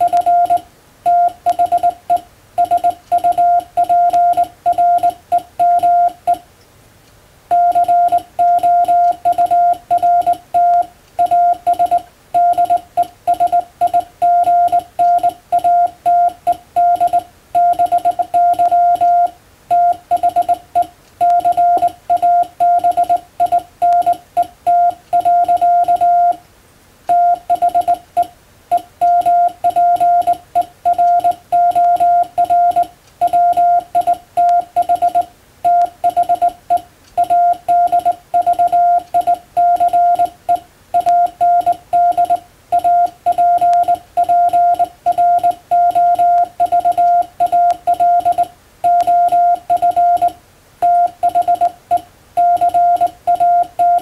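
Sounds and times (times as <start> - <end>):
morse code beeps: 0.0 - 6.4, 7.5 - 26.4, 27.1 - 54.0.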